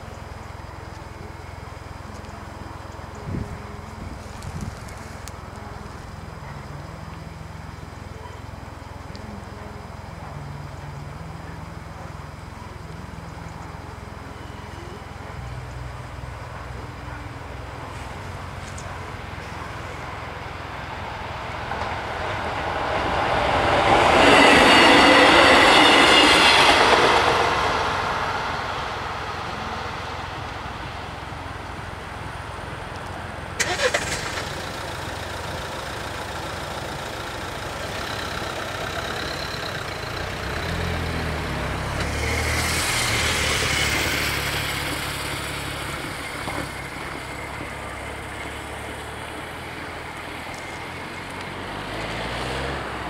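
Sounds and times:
train passing: 0:00.0 - 0:53.0
van engine revving: 0:26.7 - 0:53.0.

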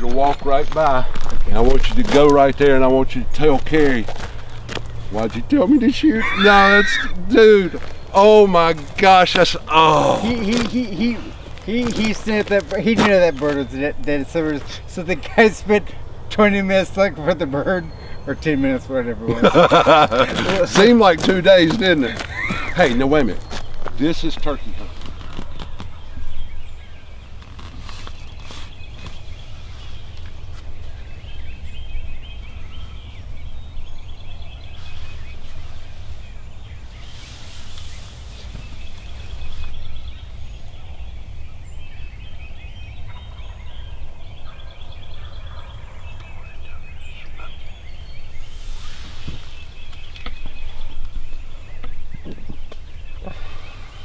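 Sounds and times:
turkey gobbling: 0:05.8 - 0:07.8.

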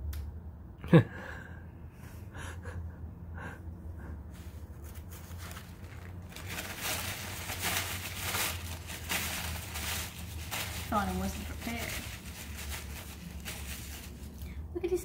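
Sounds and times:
low steady hum: 0:00.0 - 0:15.0
paper rustling: 0:04.8 - 0:14.4.

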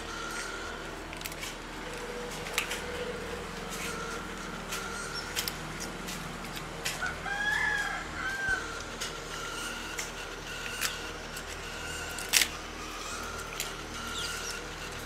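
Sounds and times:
rooster crowing: 0:07.0 - 0:09.6.

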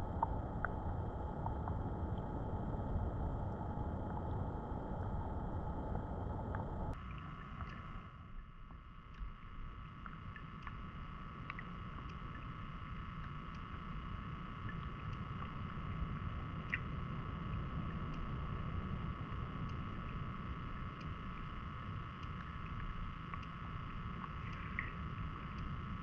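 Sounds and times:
muffled underwater water rumble: 0:00.0 - 0:26.0
steady hum: 0:00.0 - 0:26.0
faint clicks: 0:11.4 - 0:12.5, 0:22.2 - 0:25.8.

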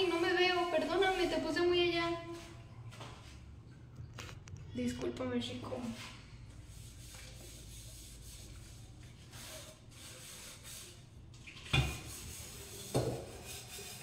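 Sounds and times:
pot being scrubbed: 0:00.0 - 0:02.6, 0:06.7 - 0:14.0.

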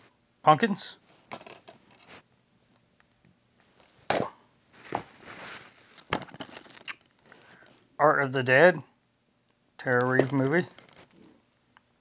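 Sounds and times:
soft plastic rustle: 0:03.6 - 0:07.9, 0:09.9 - 0:11.7.

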